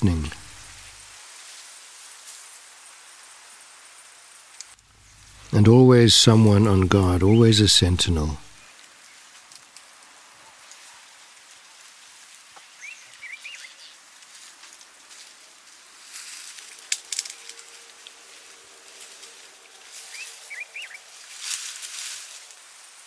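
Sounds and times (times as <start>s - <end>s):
faint steady hiss: 0.0s - 23.0s
bird chirps: 12.6s - 14.0s, 20.1s - 21.1s
rustling and crackling: 14.0s - 23.0s.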